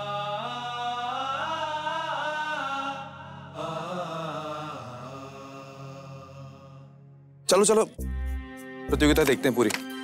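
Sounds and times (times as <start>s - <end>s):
chant-like vocal line: 0.0s - 7.0s.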